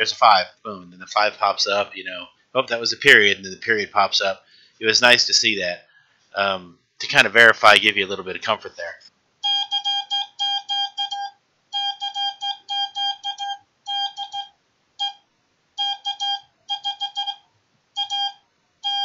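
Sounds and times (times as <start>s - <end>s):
morse code beeping: 9.4s - 15.2s, 15.8s - 17.4s, 18.0s - 19.0s.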